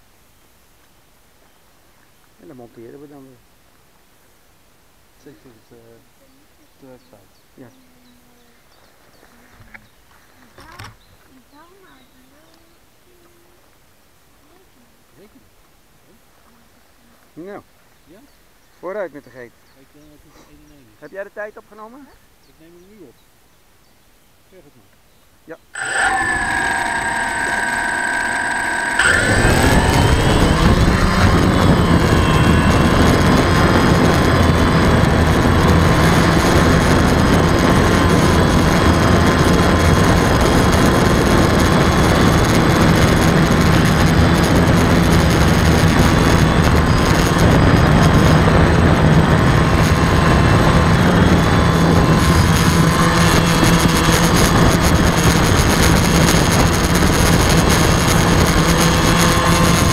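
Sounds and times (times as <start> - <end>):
drone propellers whining: 25.8 - 59.9.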